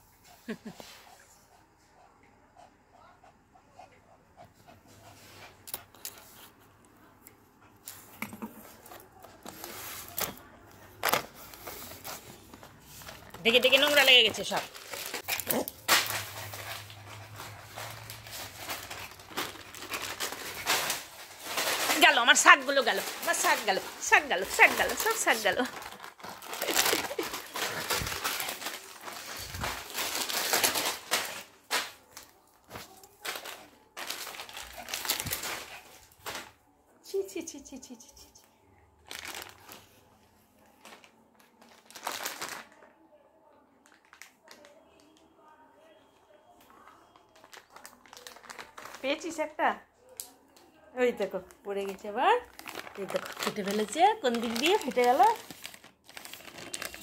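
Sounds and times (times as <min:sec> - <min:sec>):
plastic packet crinkling: 0:08.8 - 0:36.5, 0:39.0 - 0:40.0, 0:40.7 - 0:42.9, 0:43.8 - 0:45.2, 0:46.8 - 0:49.5, 0:51.4 - 0:57.0.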